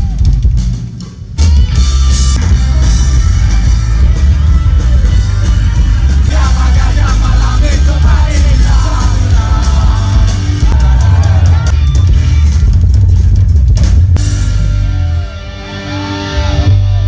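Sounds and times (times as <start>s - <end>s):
rock band playing loud: 0.0s - 17.0s
person singing and shouting: 6.2s - 11.7s.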